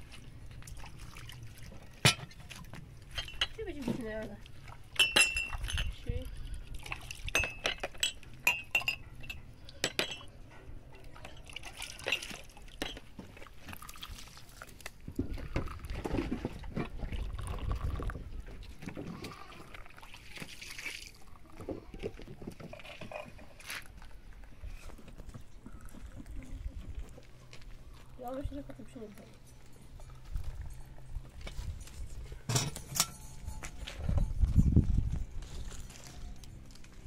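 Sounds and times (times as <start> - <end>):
glass clinks: 5.0 - 6.0, 7.3 - 10.4, 32.5 - 34.8
tea pouring into glass cups: 11.1 - 14.8, 17.0 - 18.3.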